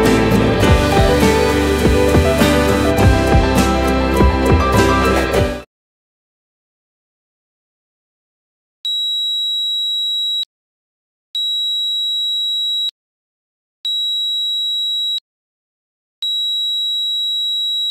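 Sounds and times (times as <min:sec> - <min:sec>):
piezo buzzer beeping: 0:00.6 - 0:03.6.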